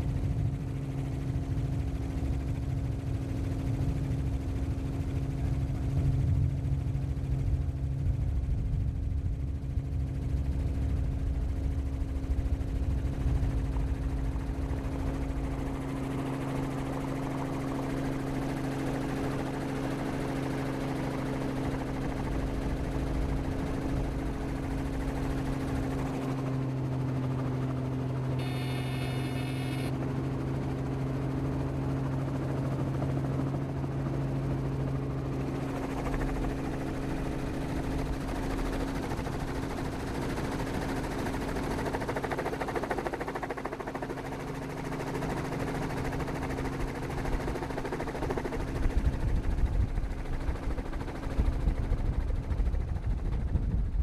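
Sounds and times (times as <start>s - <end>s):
helicopter rotor chop: 12.0s - 54.0s
engine drone: 13.7s - 39.2s
wind rumble on microphone: 48.6s - 54.0s.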